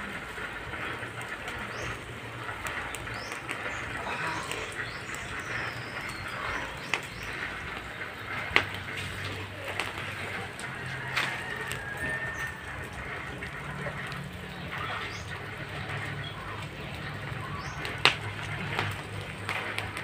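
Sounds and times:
steady low hum: 0.0s - 11.0s
birds chirping: 0.0s - 20.0s
wood fire crackling and popping: 0.0s - 20.0s.

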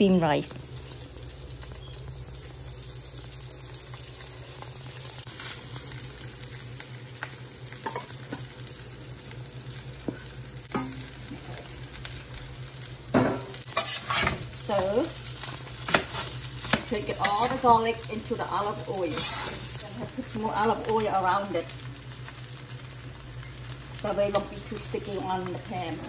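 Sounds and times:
rice sizzling in oil: 0.0s - 26.0s
metal spatula scraping bowl: 13.7s - 14.5s, 19.1s - 19.7s.

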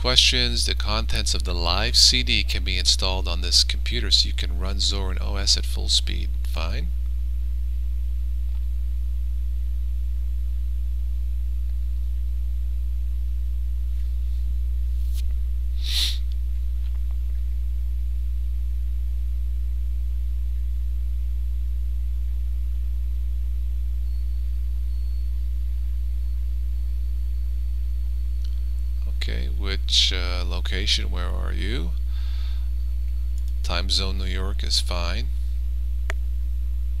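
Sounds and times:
low electrical hum: 0.0s - 37.0s
faint hiss: 15.1s - 16.4s.

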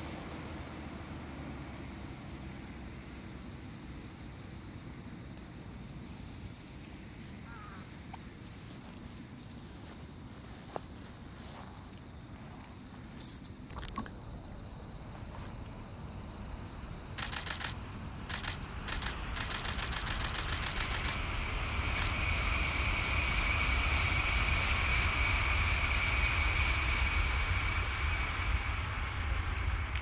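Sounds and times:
high-speed train passing: 14.2s - 30.0s
camera shutter clicking rapidly: 17.2s - 21.2s, 22.0s - 22.2s.

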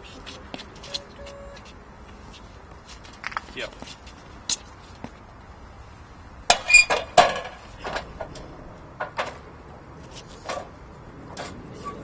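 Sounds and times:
metal dolly track clanking: 6.5s - 9.5s.

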